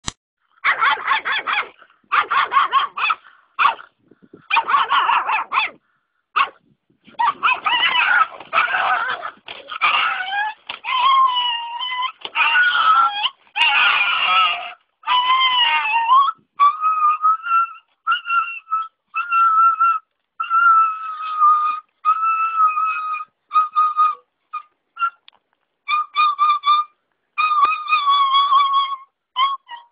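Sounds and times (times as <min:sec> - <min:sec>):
dog barking and yelping: 0:00.6 - 0:29.9
dog whining: 0:07.1 - 0:25.3, 0:25.9 - 0:29.9.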